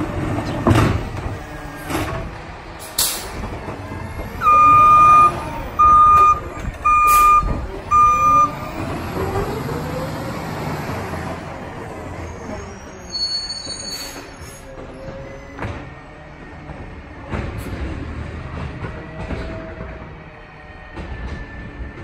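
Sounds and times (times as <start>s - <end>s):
truck engine running: 0.0s - 10.6s
alarm beeps: 4.4s - 8.6s.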